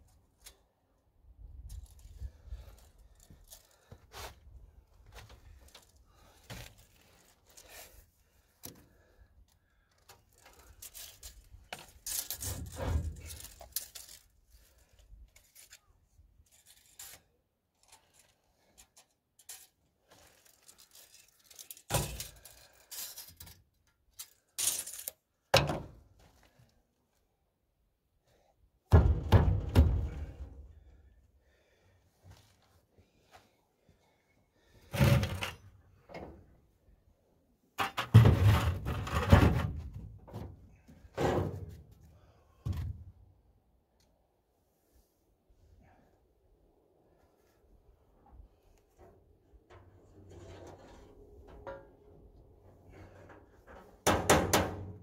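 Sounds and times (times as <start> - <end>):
tools and metal parts handled: 9.8 - 25.3.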